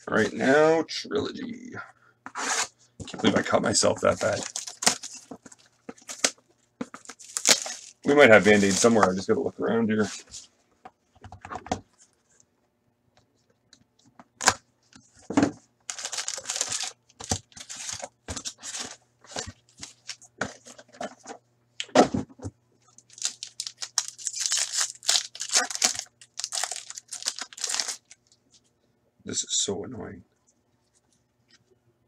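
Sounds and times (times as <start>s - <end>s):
paper wrapper tearing and crinkling: 4.1s - 5.3s, 7.0s - 9.0s, 15.9s - 20.2s, 23.0s - 28.4s.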